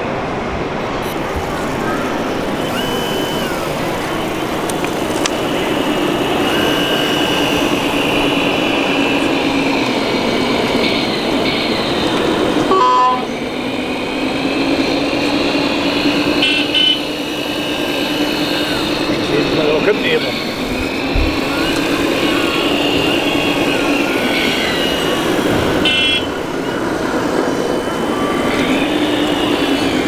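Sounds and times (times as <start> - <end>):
model construction machines whining: 0.0 - 30.0
short horn-like toots: 16.4 - 17.2.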